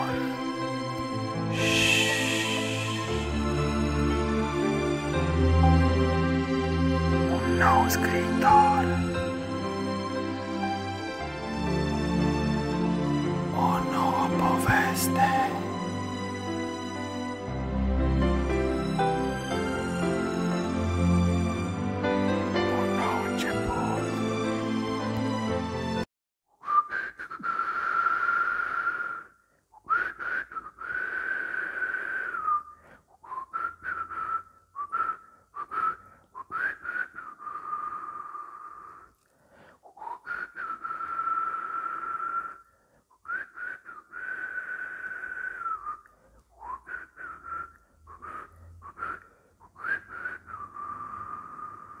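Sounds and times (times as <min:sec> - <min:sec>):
person whistling a slow tune: 0:00.0 - 0:00.5, 0:01.4 - 0:04.8, 0:07.3 - 0:09.3, 0:13.5 - 0:15.8, 0:22.7 - 0:24.2, 0:26.6 - 0:39.2, 0:39.8 - 0:52.0.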